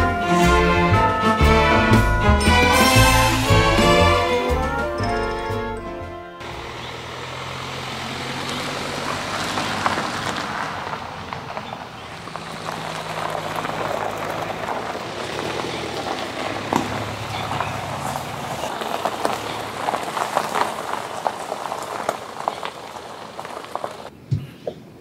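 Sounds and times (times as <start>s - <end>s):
low engine hum: 0.0s - 24.1s
tyres crunching on gravel: 6.4s - 24.1s.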